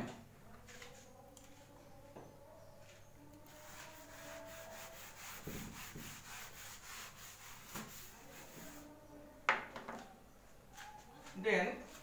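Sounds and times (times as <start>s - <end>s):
eraser rubbing on whiteboard: 3.4s - 8.9s.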